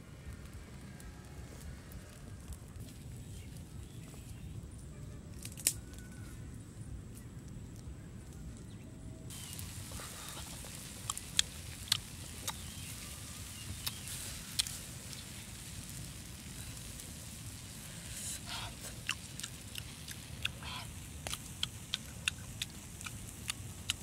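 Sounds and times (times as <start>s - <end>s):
wood fire crackling and popping: 0.1s - 4.5s, 5.3s - 6.2s, 9.3s - 24.0s
food sizzling on hot stone: 9.3s - 24.0s.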